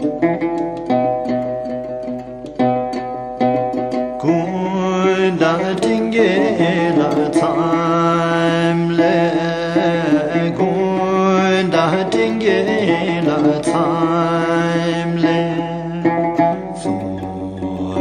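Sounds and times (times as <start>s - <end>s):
sustained instrumental chords: 0.0s - 18.0s
person singing wavering melody: 3.6s - 18.0s.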